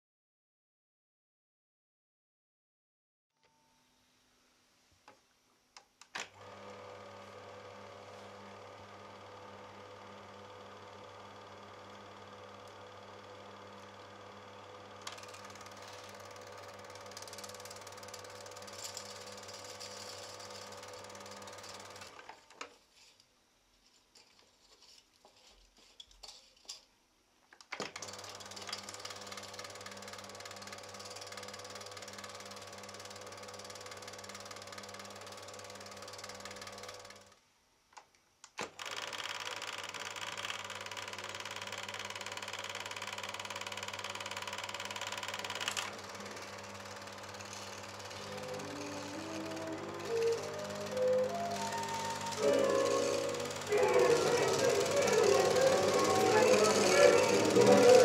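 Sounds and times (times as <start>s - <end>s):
film projector mechanical chatter: 6.4s - 22.4s, 27.8s - 37.4s, 38.6s - 58.0s.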